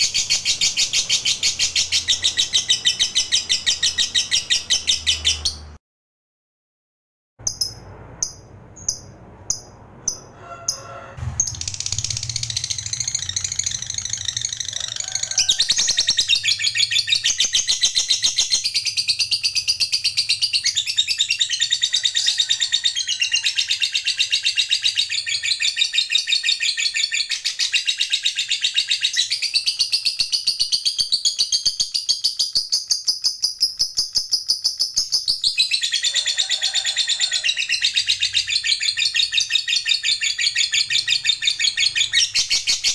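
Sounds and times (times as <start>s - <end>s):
lovebird chirps: 0.0s - 5.8s, 7.4s - 10.3s, 11.2s - 36.1s, 37.2s - 42.9s
lovebird rapid trilling chatter: 11.3s - 18.8s.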